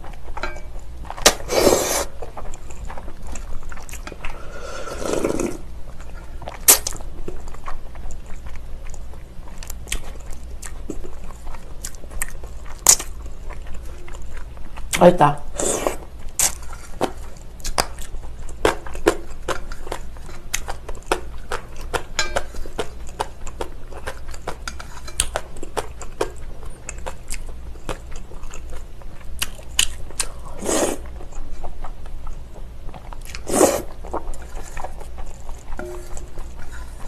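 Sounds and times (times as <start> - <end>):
slurping noodles: 1.4 - 2.2, 4.3 - 5.6, 30.6 - 31.0, 33.4 - 33.9
chewing and lip smacks: 6.4 - 15.0, 16.3 - 37.0.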